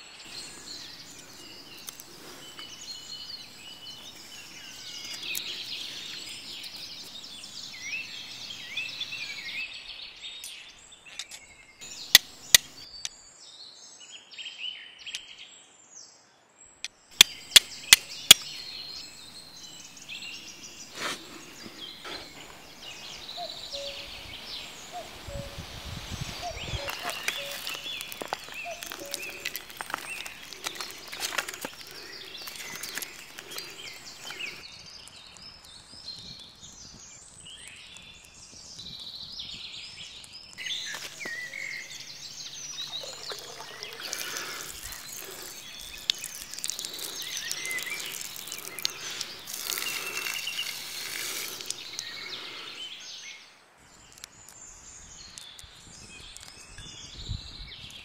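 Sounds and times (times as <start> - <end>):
birds singing and chirping: 0.0 - 13.6, 17.2 - 58.0
kindling crackling in fire: 0.2 - 9.5, 11.8 - 12.9, 17.2 - 38.9, 40.5 - 53.0.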